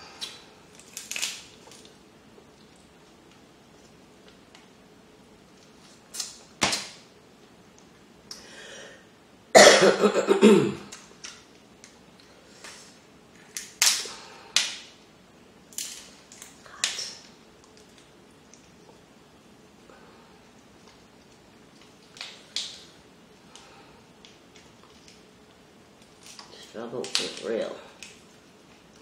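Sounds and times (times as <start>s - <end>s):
shellfish shells cracking: 0.2s - 2.0s, 13.5s - 14.9s, 15.7s - 17.0s, 21.2s - 22.9s, 26.0s - 27.4s.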